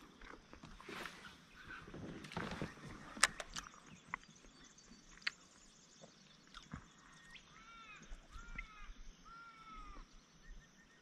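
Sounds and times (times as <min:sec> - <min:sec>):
bird calling: 0:00.8 - 0:05.4, 0:06.0 - 0:11.0.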